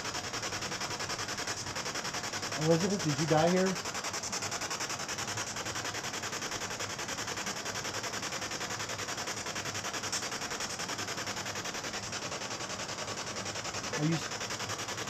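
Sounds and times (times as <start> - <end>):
radio static pulses: 13.9 - 14.3.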